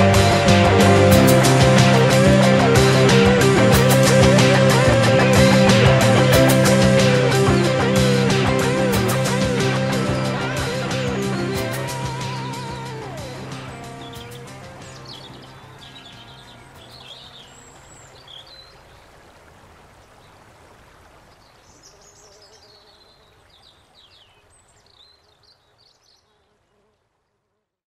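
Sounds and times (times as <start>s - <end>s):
music: 0.0s - 17.8s
rushing background like water: 0.0s - 22.2s
birds chirping and trilling: 1.2s - 19.2s, 21.3s - 26.4s.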